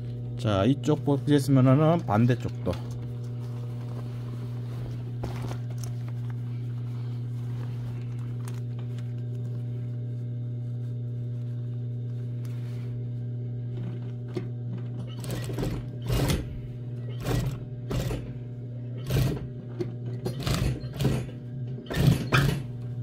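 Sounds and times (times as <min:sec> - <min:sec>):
fabric rustling: 0:03.0 - 0:14.3
sewing machine motor humming: 0:13.4 - 0:23.0.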